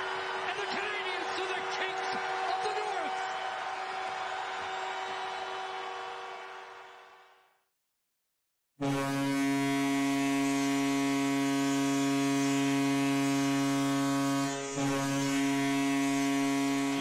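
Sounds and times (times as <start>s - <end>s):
loud chord horn blast: 8.8s - 17.0s.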